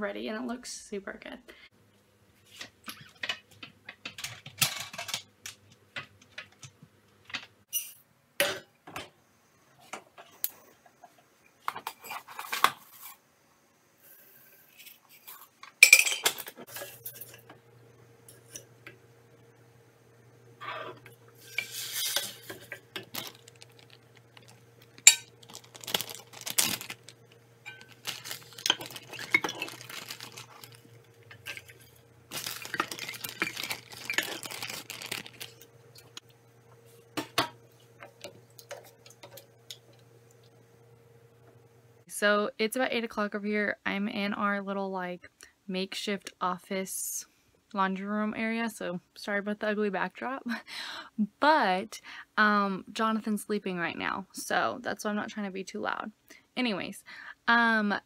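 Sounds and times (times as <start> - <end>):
pots and utensils clattering: 2.8 - 5.3, 14.4 - 17.5, 20.8 - 23.9, 24.9 - 27.0, 27.6 - 35.6, 37.2 - 39.5
steady low hum: 15.9 - 42.4
wooden spoon scraping saucepan: 20.8 - 22.8.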